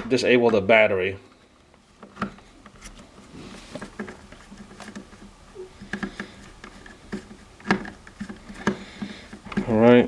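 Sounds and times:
plastic connector clicks and scrapes: 2.0 - 9.7.

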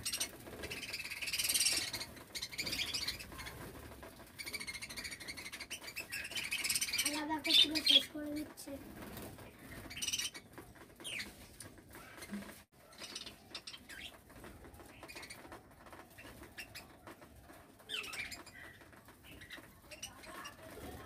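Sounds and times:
budgerigars chirping: 0.0 - 3.5
birds pecking: 0.0 - 21.0
wings fluttering: 0.0 - 21.0.

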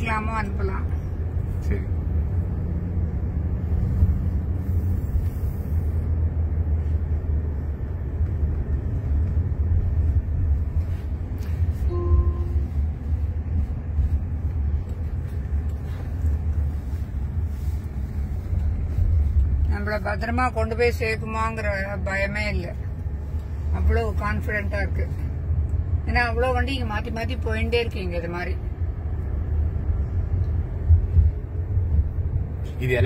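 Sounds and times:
road and tyre rumble: 0.0 - 33.0
short faint tone: 11.7 - 12.9.

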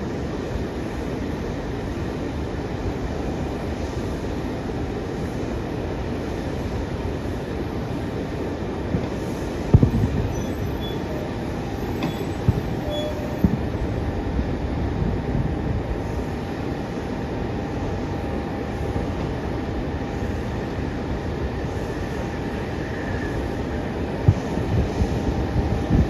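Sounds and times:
airport background rumble: 0.0 - 26.0
distant fireworks booms: 8.9 - 10.8, 11.8 - 13.9.

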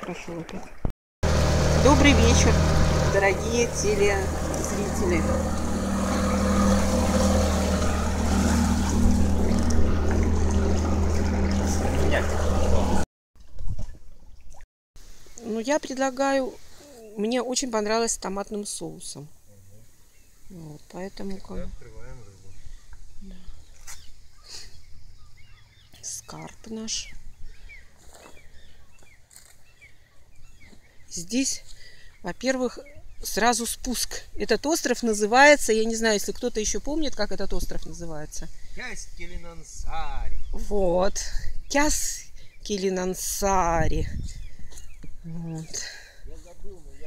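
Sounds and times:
steady low rumble: 1.2 - 13.0
motorboat engine droning: 1.2 - 13.1
small bird chirping: 32.1 - 33.5, 44.1 - 45.8.

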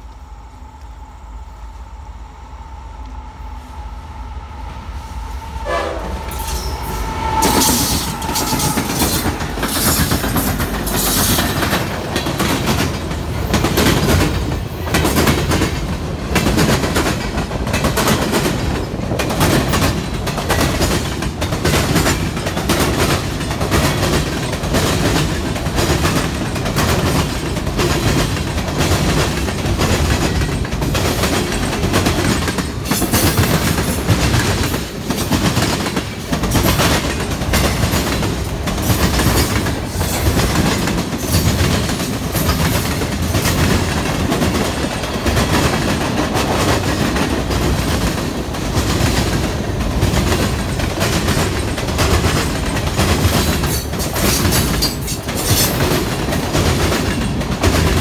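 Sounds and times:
train horn: 2.4 - 9.9
freight cars rumbling: 3.1 - 58.0
wheels clacking over rail joints: 6.2 - 58.0.

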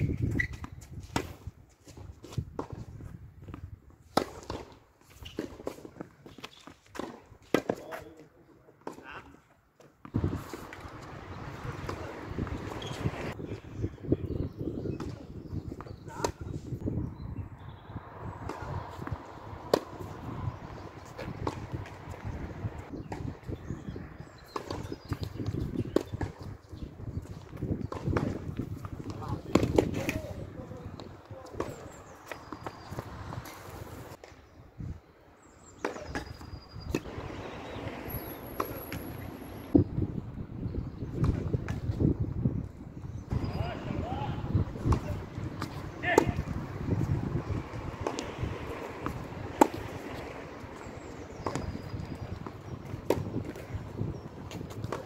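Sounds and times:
tennis ball struck by racket: 4.1 - 6.0, 6.9 - 8.0, 18.4 - 22.3, 44.8 - 47.0, 48.0 - 55.0
short high squeaks: 12.7 - 13.1
footsteps on court: 44.8 - 55.0.

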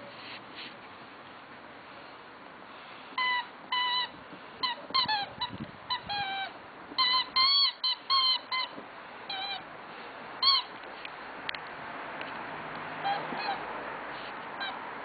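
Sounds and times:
rubber squeaky toy squeaking: 3.2 - 9.6, 10.4 - 10.8, 13.0 - 13.6, 14.5 - 14.8.

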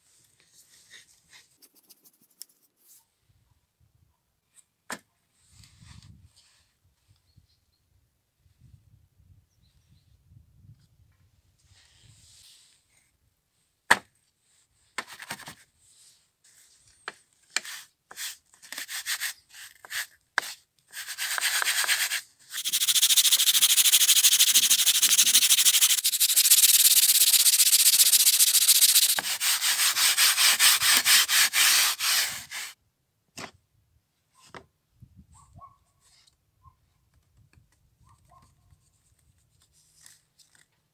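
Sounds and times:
steel wool scrubbing saw blade: 21.0 - 32.8.

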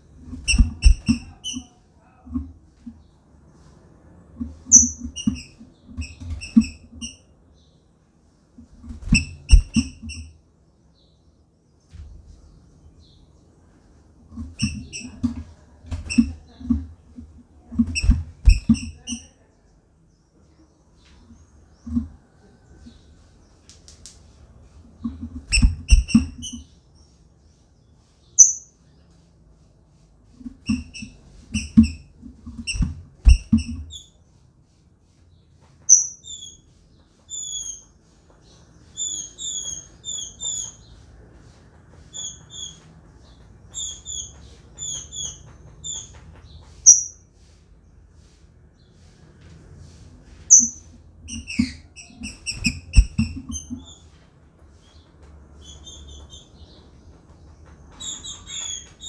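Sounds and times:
bird high chipping calls: 4.7 - 5.6, 28.4 - 28.7, 35.9 - 36.6, 46.8 - 47.2, 50.5 - 54.0.

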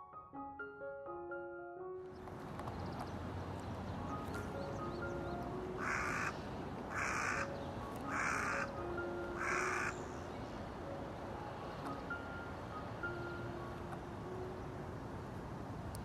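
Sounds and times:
soft background music: 0.0 - 16.0
crow cawing: 5.8 - 7.5, 8.1 - 8.7, 9.4 - 10.0.

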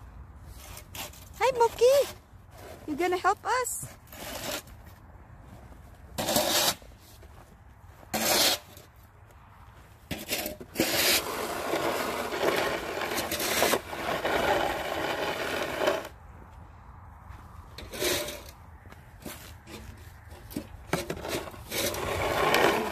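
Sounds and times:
snow shovel scraping pavement: 0.4 - 5.0, 6.0 - 7.3, 8.0 - 8.9, 10.0 - 16.2, 17.7 - 22.9.

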